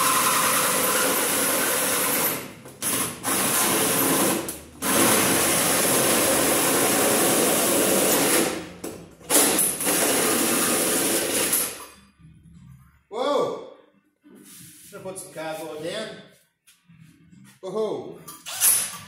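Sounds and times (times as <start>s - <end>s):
drill cutting through sheet metal: 0.0s - 8.6s, 9.3s - 11.8s.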